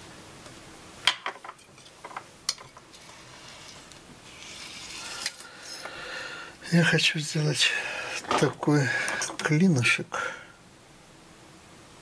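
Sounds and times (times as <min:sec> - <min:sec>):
soft rubbing of clay sheet: 0:02.8 - 0:05.4.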